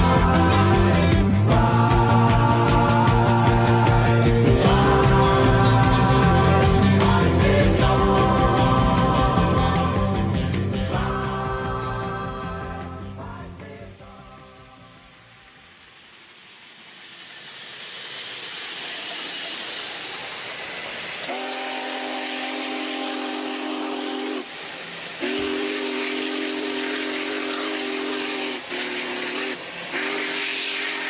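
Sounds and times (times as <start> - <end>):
steam locomotive running: 0.0 - 31.0
steam whistle blasts: 21.0 - 31.0.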